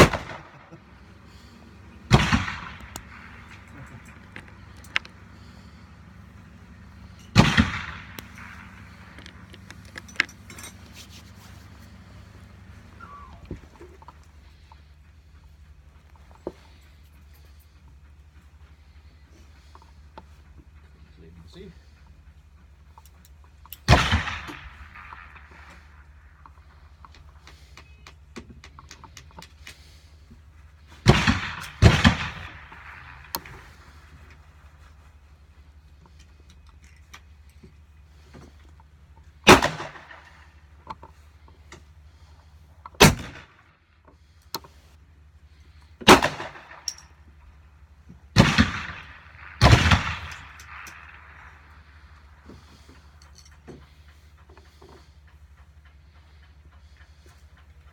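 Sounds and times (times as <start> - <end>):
loud gunshot echoing: 0.0 - 0.8, 2.1 - 3.6, 7.3 - 9.0, 23.9 - 25.5, 31.0 - 33.7, 39.5 - 40.2, 46.0 - 46.8, 48.4 - 51.2
revolver parts clicking: 1.3 - 15.0, 35.9 - 57.9
revolver metallic clicks: 1.6 - 5.7, 6.8 - 11.0, 48.4 - 52.4.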